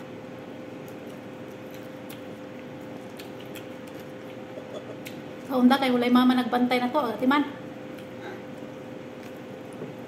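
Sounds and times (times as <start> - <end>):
electrical hum: 0.0 - 10.0
person chewing and eating: 0.7 - 5.5, 7.8 - 10.0.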